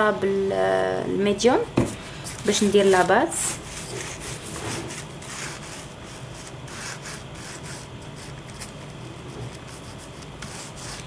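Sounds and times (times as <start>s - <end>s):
sponge brush rubbing on canvas: 2.3s - 11.0s.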